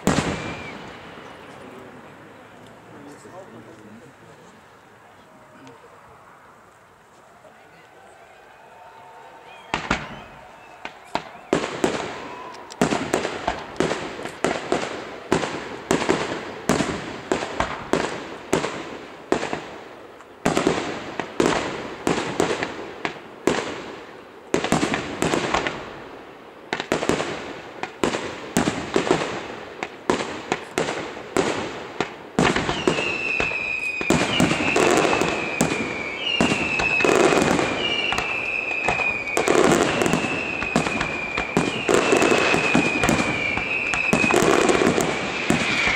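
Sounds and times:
firework whistles: 0.0 - 1.4, 8.2 - 13.9, 32.4 - 45.9
fireworks bangs: 0.0 - 4.7, 7.4 - 45.9.

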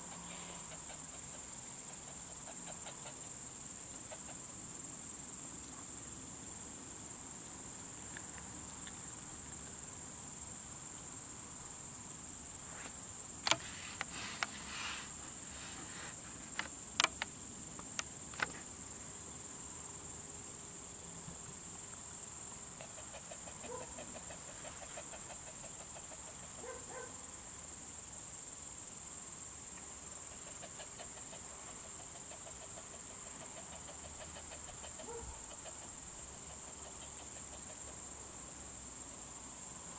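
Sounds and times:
crickets chirring: 0.0 - 39.9
sharp clicks: 13.4 - 14.5, 16.5 - 18.6.

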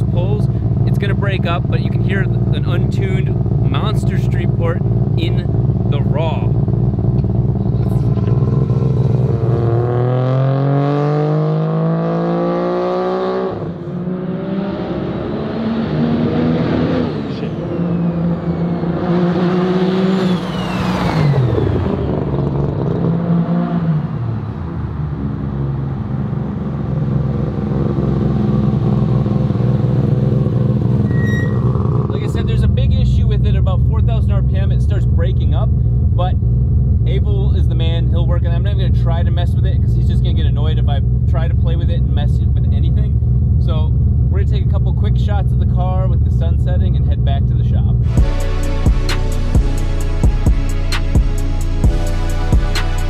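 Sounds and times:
rotary engine revving: 0.6 - 23.9.

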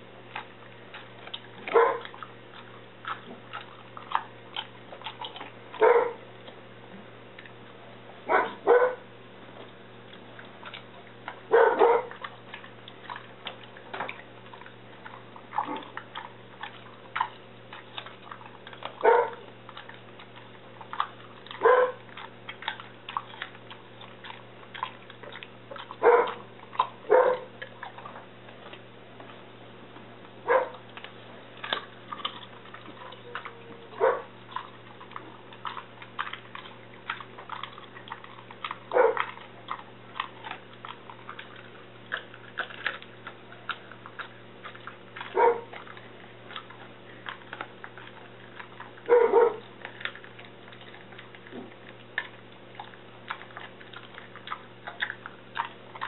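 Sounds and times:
dog chewing bones: 0.0 - 56.0
dog barking: 1.7 - 2.2, 5.7 - 6.2, 8.3 - 9.0, 11.5 - 12.3, 15.6 - 15.9, 18.9 - 19.4, 21.5 - 22.0, 25.8 - 27.5, 30.4 - 30.8, 33.0 - 34.6, 38.9 - 39.4, 45.2 - 45.8, 49.0 - 49.7.

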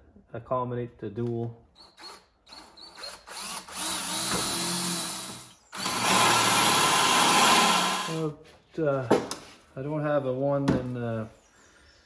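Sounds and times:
cordless drill boring steel: 1.8 - 8.3.

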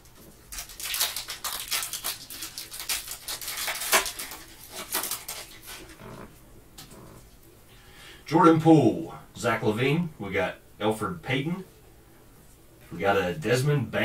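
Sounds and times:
foil wrapper crinkling and tearing: 0.1 - 6.1.

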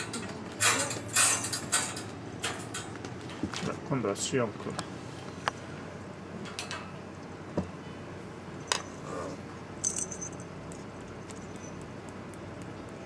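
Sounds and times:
wire cage rattling: 0.0 - 2.9.

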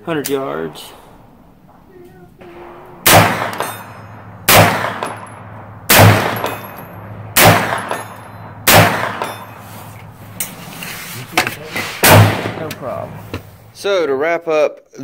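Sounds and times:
gunshots with echo: 0.2 - 9.6, 12.0 - 13.1.

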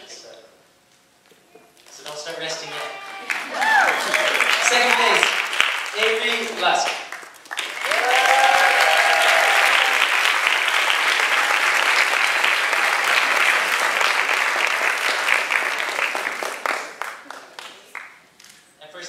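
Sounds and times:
audience applauding: 2.6 - 18.2.

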